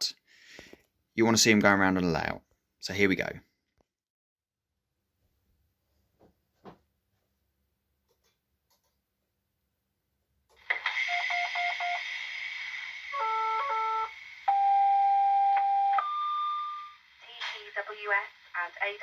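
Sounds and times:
steady hiss: 10.5s - 14.5s
long steady warning tone: 13.1s - 17.1s.

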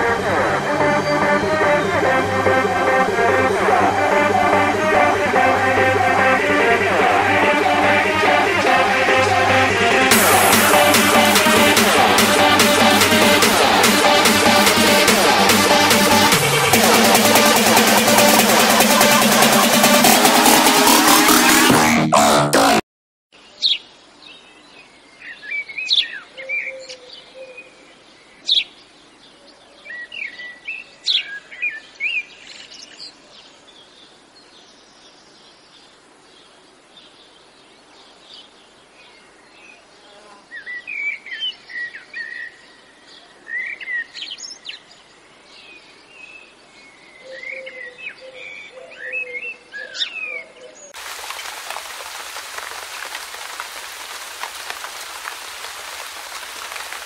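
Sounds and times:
fountain water splashing: 10.1s - 21.2s, 51.0s - 57.0s.

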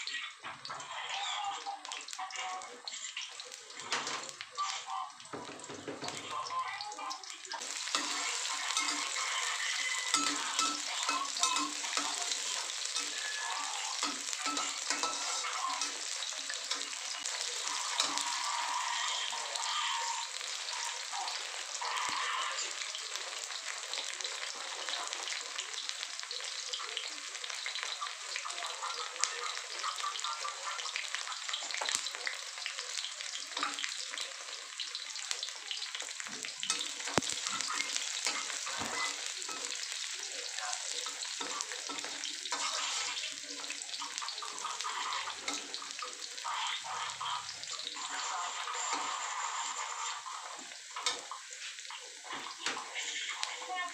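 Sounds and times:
garlic sizzling in hot oil: 0.0s - 53.9s
metal spatula scraping wok: 7.6s - 22.9s, 41.1s - 43.4s, 44.1s - 51.9s.

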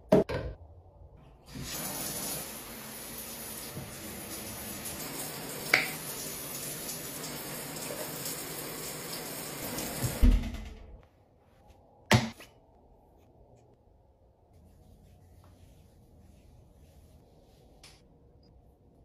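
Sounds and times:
shower water running: 1.4s - 10.6s.

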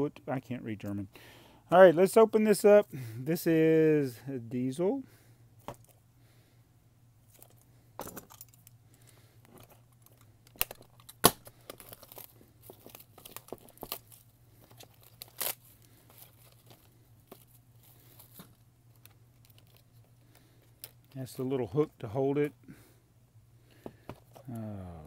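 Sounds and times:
plastic shrink wrap crinkling: 9.9s - 21.5s.

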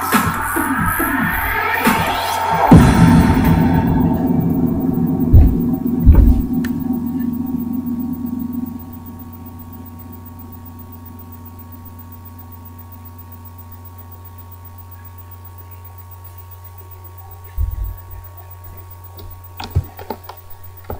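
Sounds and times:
faint steady tones: 0.0s - 20.9s
dull thud: 2.7s - 6.6s
low electrical hum: 2.7s - 20.9s.

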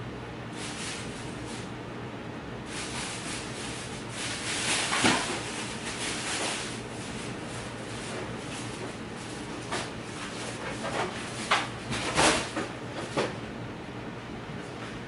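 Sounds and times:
plastic bags rustling: 0.5s - 1.7s, 2.7s - 12.6s.

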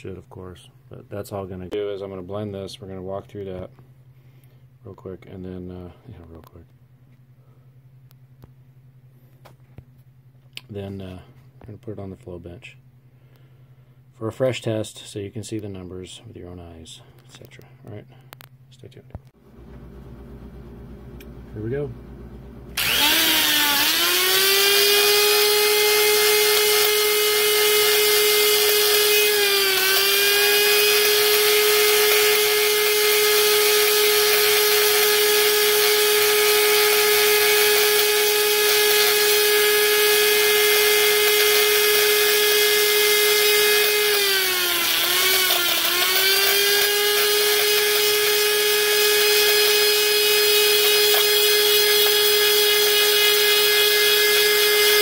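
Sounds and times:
die grinder whining: 22.8s - 55.0s.

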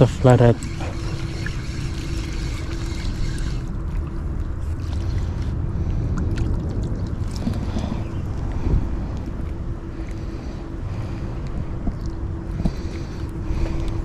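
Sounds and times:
constant hum: 0.0s - 14.0s
distant engine rumble: 0.0s - 14.0s.

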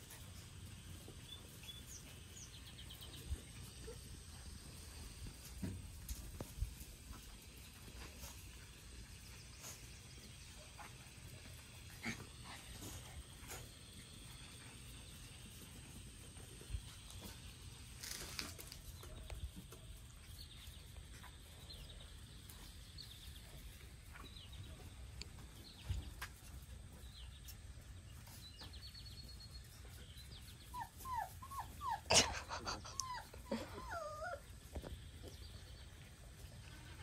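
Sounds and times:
puppies whimpering: 30.7s - 34.6s.

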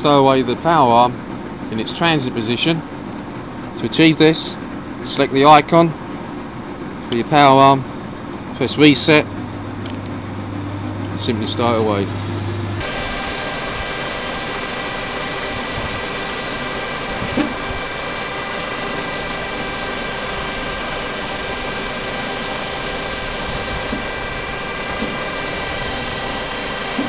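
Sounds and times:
truck engine whining: 7.1s - 27.0s
hydraulic arm knocks: 17.2s - 17.7s, 23.8s - 24.2s, 24.9s - 25.3s.

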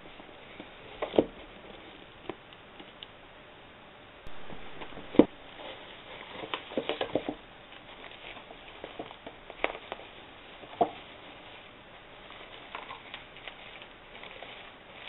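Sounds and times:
bubble wrap crinkling: 4.3s - 15.0s.

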